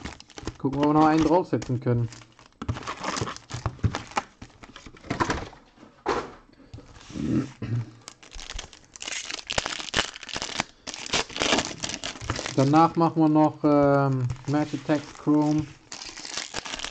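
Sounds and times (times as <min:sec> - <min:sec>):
foil pack tearing: 0:00.0 - 0:04.7, 0:08.0 - 0:16.9
foil packs crinkling: 0:00.0 - 0:05.0, 0:07.9 - 0:16.9.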